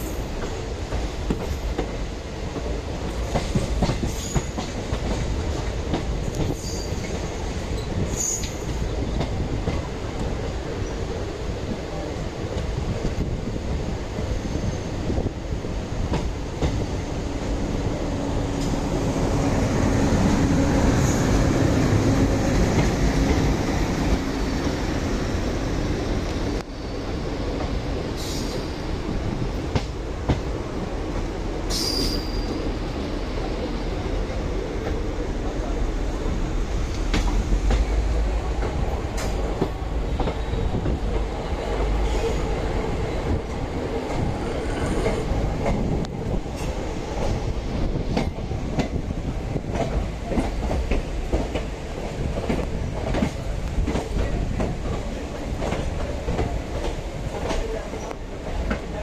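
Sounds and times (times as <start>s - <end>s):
train wheels rattling over rails: 0.0s - 59.0s
high wheel squeals: 6.5s - 7.2s, 7.8s - 8.7s, 31.7s - 32.6s.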